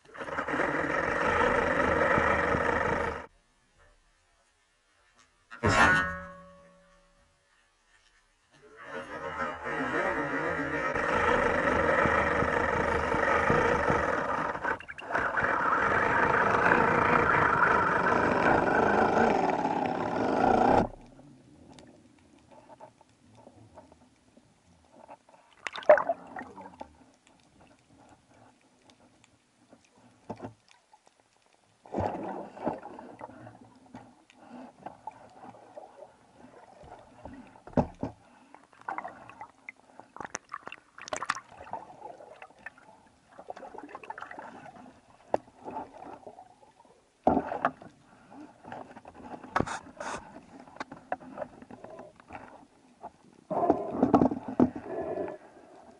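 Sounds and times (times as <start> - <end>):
underwater water rushing and gurgling: 11.0 - 55.9.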